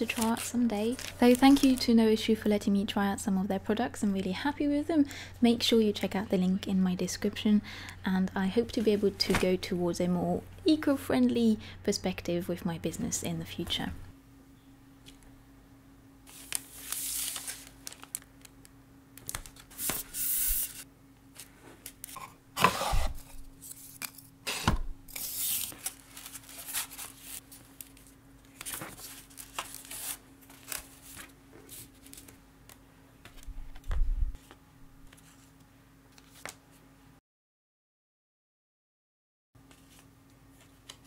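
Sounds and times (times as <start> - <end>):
paper and plastic rustling: 0.0 - 2.0, 16.3 - 18.6, 25.1 - 32.4
faint steady hum: 0.0 - 37.2.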